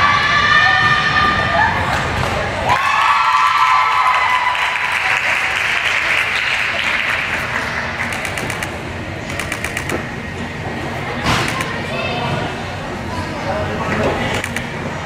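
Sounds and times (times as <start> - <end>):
crowd applauding and cheering: 2.6 - 8.6
scattered claps: 4.5 - 10.0.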